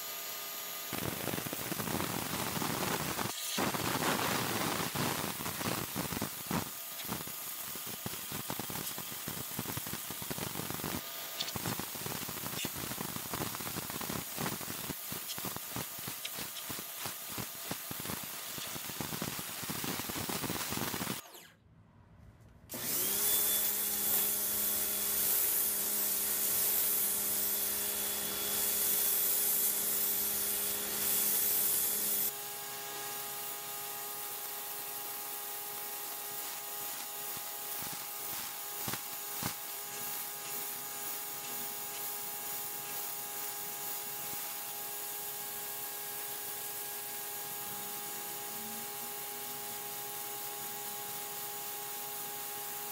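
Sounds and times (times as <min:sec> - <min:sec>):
water jet hissing on concrete: 0:01.0 - 0:21.2, 0:23.0 - 0:32.4, 0:33.1 - 0:52.9
pressure washer motor humming: 0:22.7 - 0:52.9.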